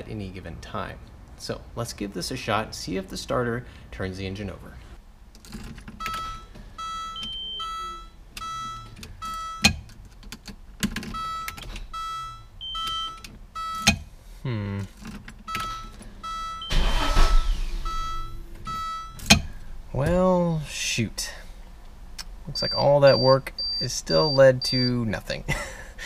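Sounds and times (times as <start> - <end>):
dashboard warning chime dinging: 6.0 - 9.8, 11.1 - 14.0, 15.5 - 19.6, 22.5 - 25.1.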